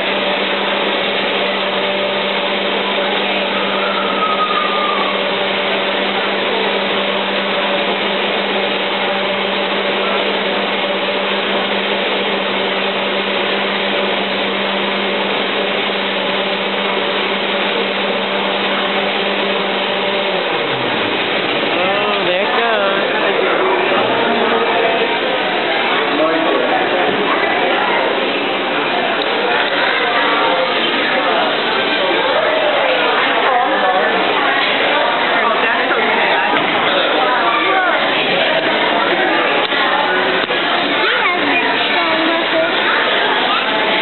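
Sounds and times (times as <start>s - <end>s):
electric motor humming: 0.0s - 34.5s.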